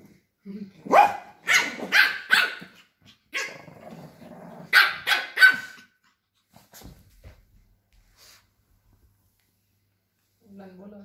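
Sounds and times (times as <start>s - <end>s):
dog growling: 3.4s - 4.7s
dogs yapping: 4.7s - 6.0s.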